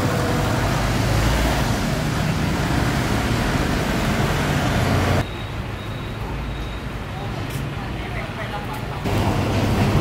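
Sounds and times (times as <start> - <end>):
road traffic noise: 0.0 - 10.0.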